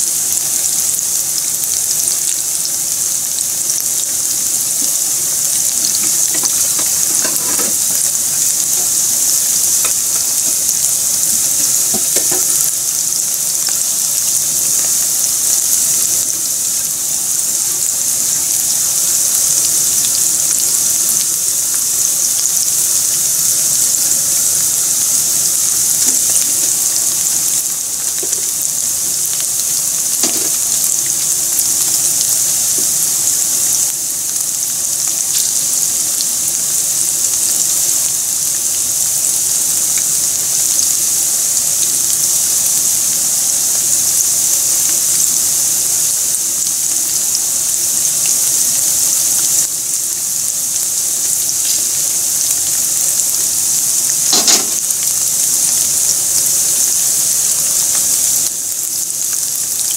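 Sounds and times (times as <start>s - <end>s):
chicken deep-frying in hot oil: 0.0s - 59.9s
crackles and pops of frying: 0.0s - 59.9s.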